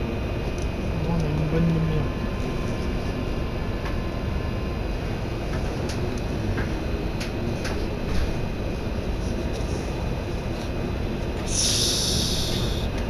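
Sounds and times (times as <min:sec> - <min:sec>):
train interior equipment noise: 0:05.1 - 0:08.5.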